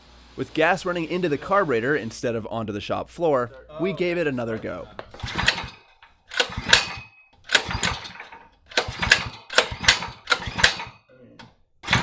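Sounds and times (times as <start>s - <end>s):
engine pull-start cranking: 5.2s - 11.0s.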